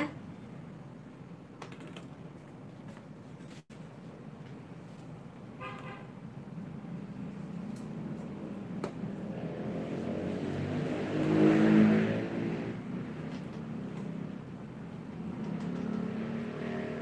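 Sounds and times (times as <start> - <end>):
motor vehicle passing by: 9.1 - 17.0.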